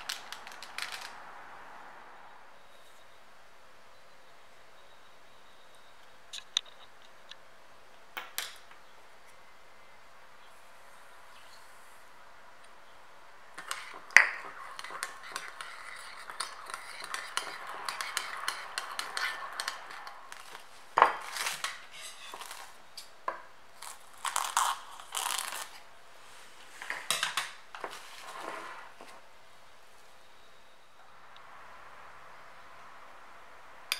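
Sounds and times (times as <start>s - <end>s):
cling film crackling: 0.0s - 2.0s, 13.5s - 23.1s, 23.8s - 25.9s
light scraping and clicking: 13.6s - 23.1s.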